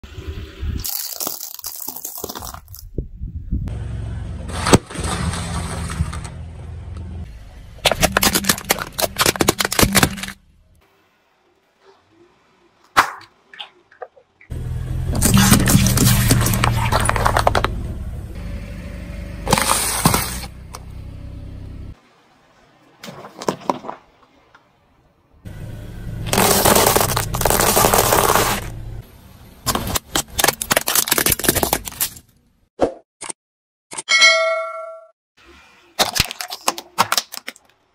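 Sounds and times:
plastic toy cracking under tyre: 0.8 - 2.8, 7.8 - 10.4, 29.7 - 32.2, 36.0 - 37.8
car tyre crunching brittle things: 0.8 - 2.9, 7.8 - 10.4, 15.0 - 17.8, 19.4 - 20.9, 26.2 - 28.8, 29.6 - 32.3, 36.0 - 37.9
tyre crushing cup cracking: 0.8 - 2.9, 7.8 - 10.4, 26.3 - 28.7
sharp crack: 12.9 - 13.6
car engine running low: 14.5 - 22.0, 25.4 - 29.6.

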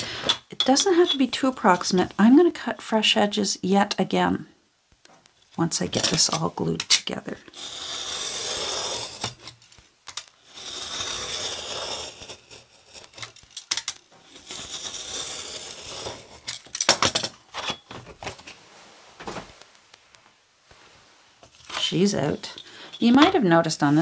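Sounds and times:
craft knife cutting paper: 7.5 - 9.4, 10.4 - 16.5.

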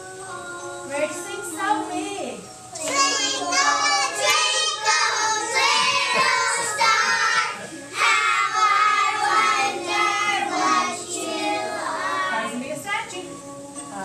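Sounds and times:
children singing together: 2.7 - 12.5.

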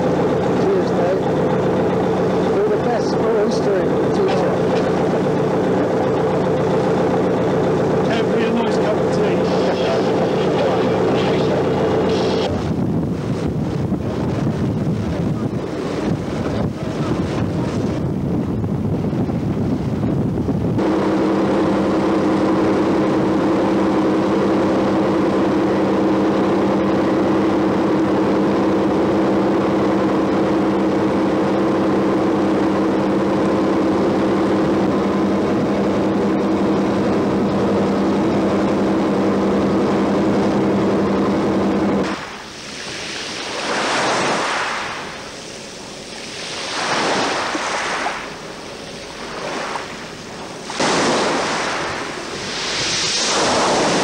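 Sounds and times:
boat engine droning: 0.0 - 54.0
wind: 0.0 - 54.0
water hiss: 42.0 - 54.0
waves washing in: 42.0 - 54.0.

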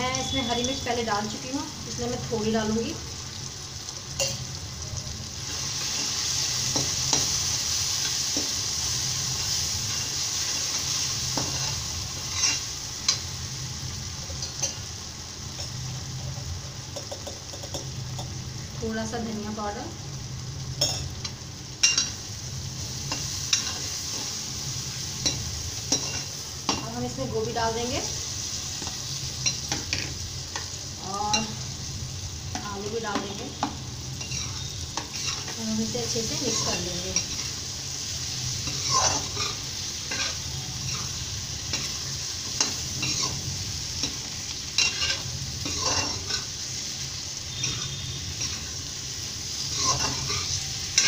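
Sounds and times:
masala sizzling in oil: 0.0 - 51.0
steel ladle scraping pan: 34.2 - 35.6, 47.5 - 48.8, 49.6 - 51.0.

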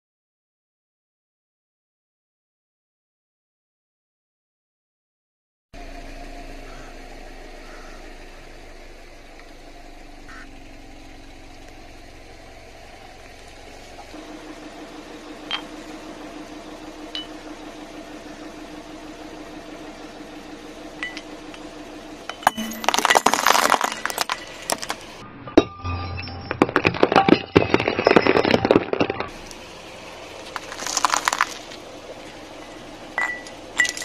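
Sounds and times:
car engine idling: 5.8 - 25.3, 26.5 - 34.0
glass bulbs crunching under tyre: 19.7 - 25.2, 26.0 - 34.0.

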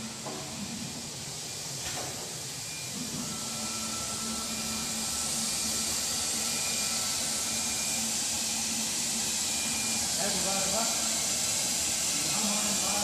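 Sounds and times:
steady machine hiss: 3.4 - 13.0.

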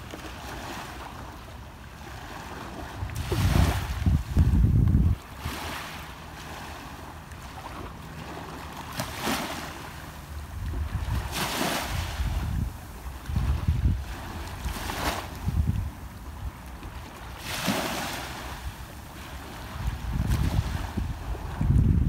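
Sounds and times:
small waves washing on shore: 0.0 - 22.0
wind buffeting microphone: 2.8 - 5.7, 10.4 - 16.6, 19.4 - 22.0.

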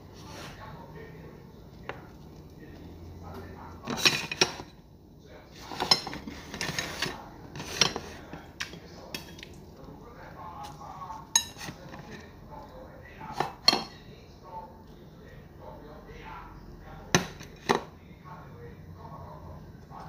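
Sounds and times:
metal tongs clinking on ceramic: 11.2 - 11.8, 13.4 - 14.0.

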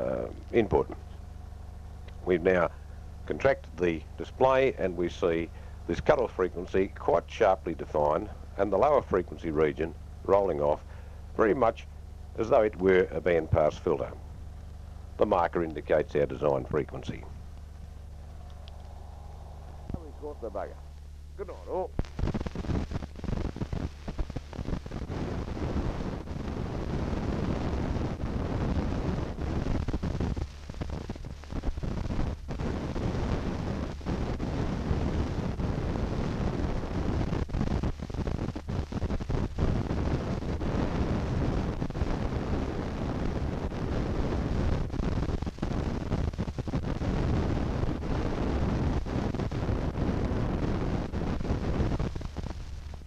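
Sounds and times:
low hum and hiss: 0.0 - 53.0
low rumbling noise: 0.0 - 53.0
brief crackles: 18.3 - 19.0.

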